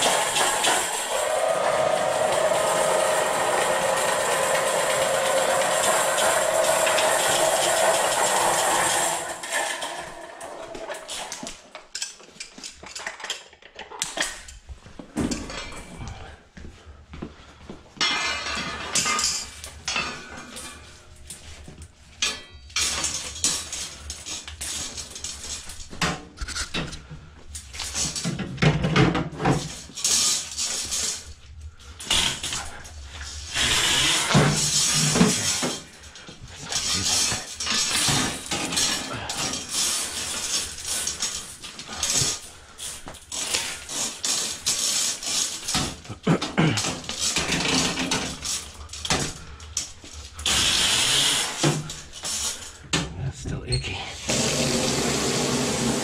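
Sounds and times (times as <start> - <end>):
cart rattling on floor: 0.0 - 12.0, 32.0 - 50.3
metal clinks and clatter: 34.6 - 50.3.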